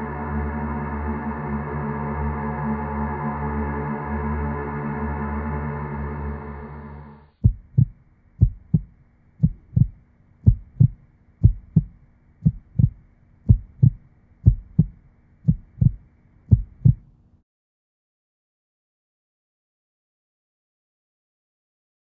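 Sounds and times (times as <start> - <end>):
heartbeat thumps: 7.4 - 17.1.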